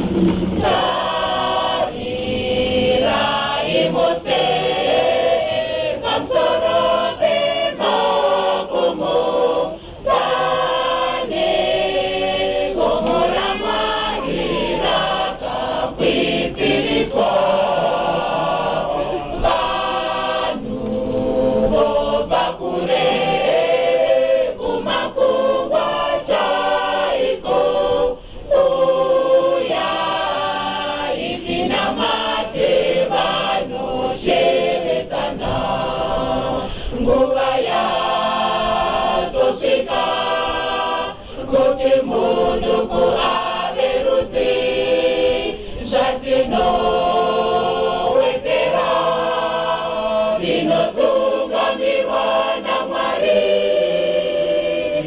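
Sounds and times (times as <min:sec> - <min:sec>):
choir singing unaccompanied: 0:00.0 - 0:55.0
singers breathing: 0:09.7 - 0:10.1, 0:28.2 - 0:28.5, 0:36.6 - 0:37.0, 0:41.1 - 0:41.5, 0:45.6 - 0:45.8.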